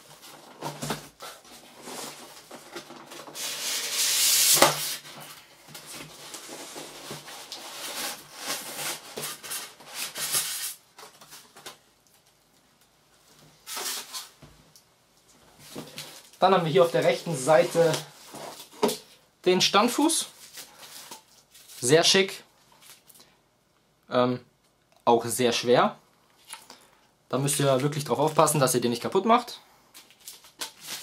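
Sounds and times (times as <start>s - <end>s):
polystyrene foam scraping cardboard: 0.0s - 10.8s, 13.6s - 14.3s, 16.8s - 18.7s.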